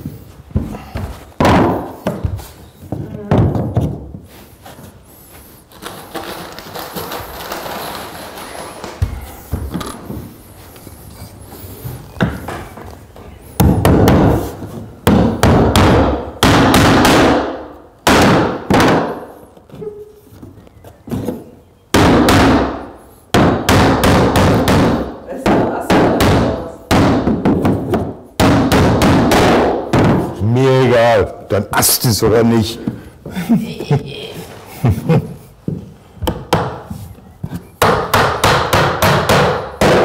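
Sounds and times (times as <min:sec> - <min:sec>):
hammer striking wooden floorboards: 0:00.0 - 0:04.2, 0:05.8 - 0:10.3, 0:11.8 - 0:12.9, 0:13.6 - 0:19.4, 0:21.0 - 0:30.4, 0:35.7 - 0:40.0.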